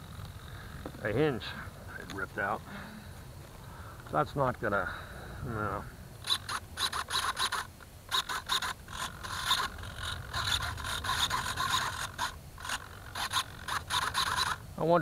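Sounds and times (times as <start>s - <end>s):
handling noise scraping and rubbing: 6.3s - 14.6s.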